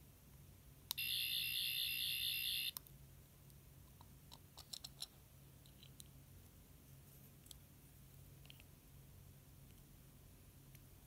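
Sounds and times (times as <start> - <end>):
high pulsing electronic toy sound: 1.0 - 2.7.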